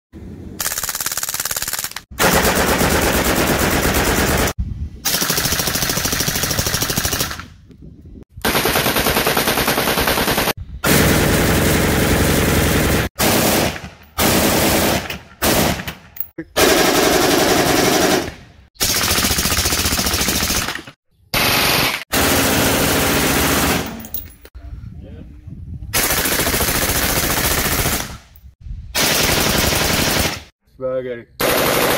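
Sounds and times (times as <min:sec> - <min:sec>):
automatic rifle fire bursts: 0:29.0 - 0:30.5, 0:31.4 - 0:31.9.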